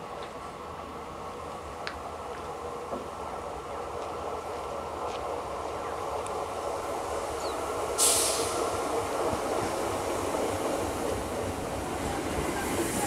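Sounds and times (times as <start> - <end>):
train slowing into a platform: 0.0 - 13.0
short sharp hiss: 8.0 - 8.7.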